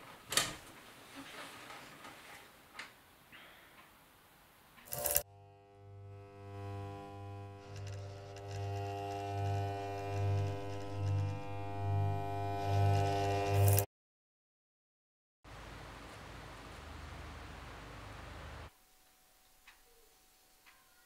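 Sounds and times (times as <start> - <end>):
eerie electric hum drone: 4.9 - 13.9.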